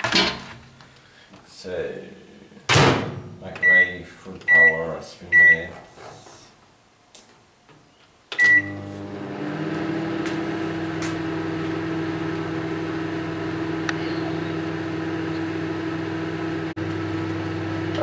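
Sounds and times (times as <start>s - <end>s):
microwave beep: 3.6s - 5.7s, 8.4s - 8.9s
microwave humming: 8.3s - 18.0s.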